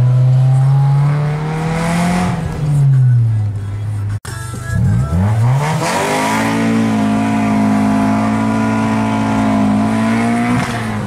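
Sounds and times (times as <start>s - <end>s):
loud car exhaust revving: 0.0s - 2.7s, 4.9s - 11.0s.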